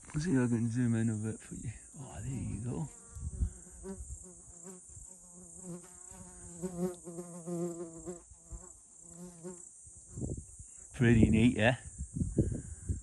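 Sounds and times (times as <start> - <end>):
high insect chirring: 0.1 - 13.0
fly buzzing: 2.6 - 10.9.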